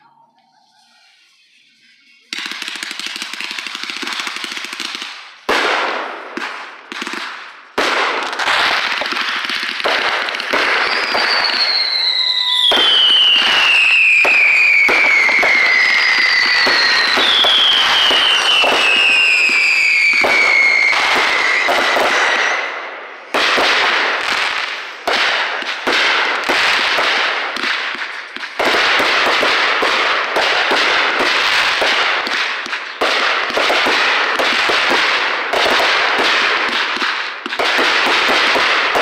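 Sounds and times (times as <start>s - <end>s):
fireworks bangs and crackling: 0.0s - 39.0s
falling firework whistles: 10.5s - 22.8s.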